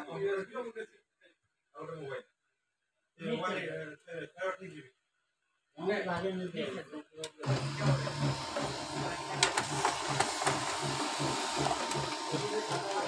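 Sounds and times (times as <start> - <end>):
sharp printer clicks: 7.3 - 13.0
laser printer whirring: 7.4 - 13.0.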